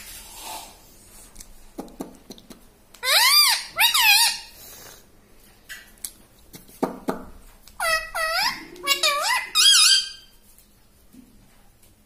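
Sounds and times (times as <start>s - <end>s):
parakeet squawks: 3.0s - 4.6s, 7.8s - 10.3s.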